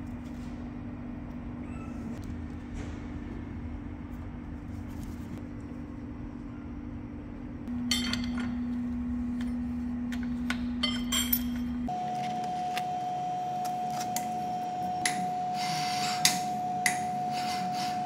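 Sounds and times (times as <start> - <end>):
low machine hum: 0.0 - 18.0
metal tools clinking on metal: 7.8 - 8.7, 10.8 - 11.9.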